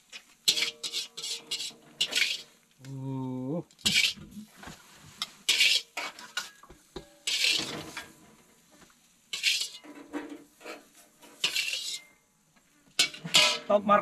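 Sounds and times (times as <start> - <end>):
metal spoons scraping a pot: 0.1 - 2.6, 3.8 - 4.2, 5.2 - 6.6, 7.2 - 8.2, 9.3 - 12.1, 12.9 - 13.8.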